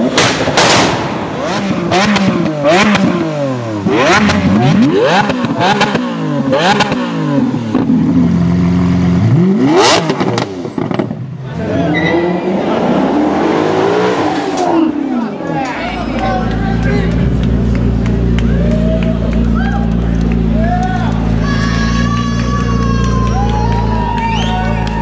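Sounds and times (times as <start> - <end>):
exhaust cracks: 0.0 - 11.3
sports car engine revving: 0.0 - 21.4.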